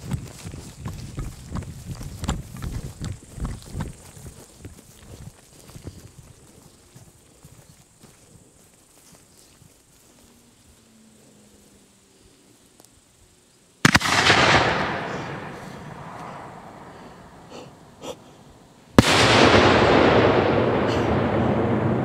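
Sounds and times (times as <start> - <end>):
rolling echo: 13.8 - 17.5, 19.0 - 22.0.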